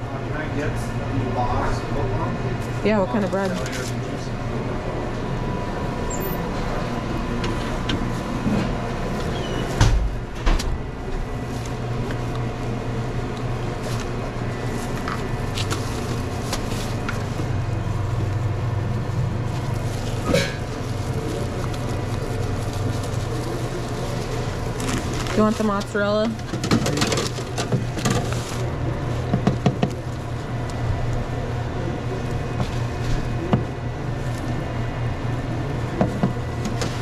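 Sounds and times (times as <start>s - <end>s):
kitchen equipment hum: 0.0s - 37.0s
utensils and containers clattering: 20.0s - 21.4s, 24.8s - 28.6s.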